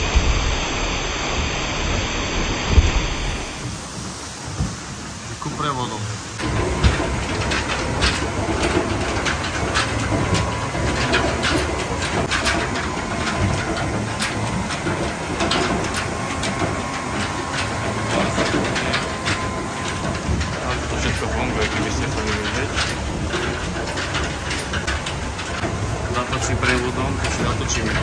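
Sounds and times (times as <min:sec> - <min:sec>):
faint steady whine: 0:00.0 - 0:28.0
mill gearing rumbling: 0:00.0 - 0:28.0
clacking knocks: 0:06.0 - 0:28.0.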